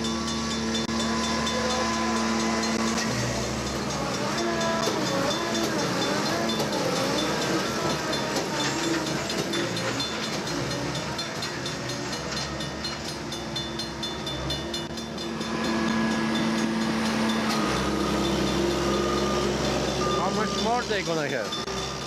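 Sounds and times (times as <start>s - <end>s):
diesel engine drone: 0.0s - 22.0s.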